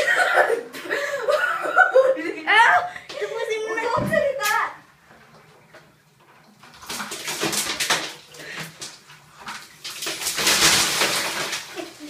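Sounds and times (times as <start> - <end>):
ice water pouring and splashing: 6.4 - 12.0.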